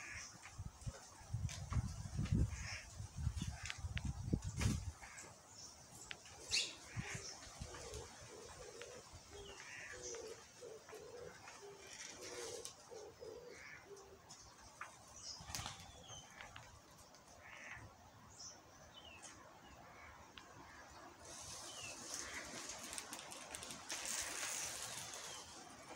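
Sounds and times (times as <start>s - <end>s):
small birds chirping: 2.6s - 25.9s
dove cooing faintly: 6.4s - 14.4s.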